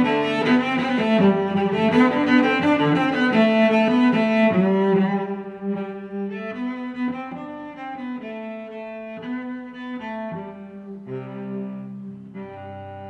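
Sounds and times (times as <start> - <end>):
instrumental music with held notes: 0.0 - 13.0.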